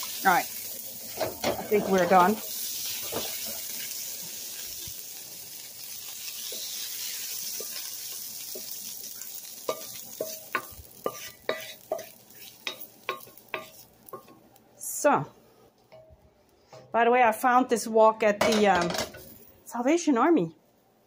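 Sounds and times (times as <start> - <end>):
vegetables sizzling in a wok: 0.0 - 15.6, 18.8 - 19.5.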